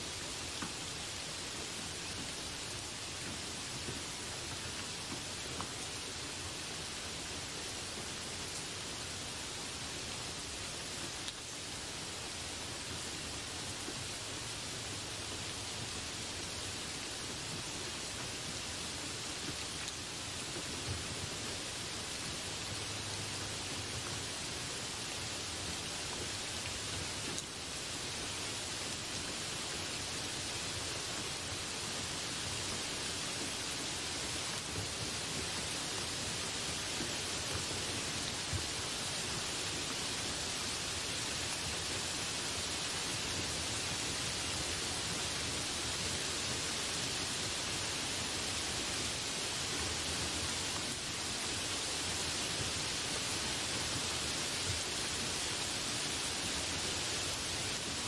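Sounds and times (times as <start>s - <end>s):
heavy rain on leaves: 0.0s - 58.0s.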